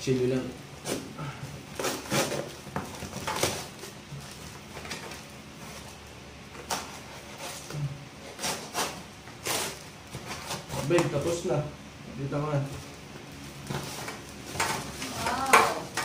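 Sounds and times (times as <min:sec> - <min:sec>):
cardboard tearing: 0:00.8 - 0:11.4
knife slicing packing tape: 0:01.7 - 0:04.0, 0:06.5 - 0:11.2.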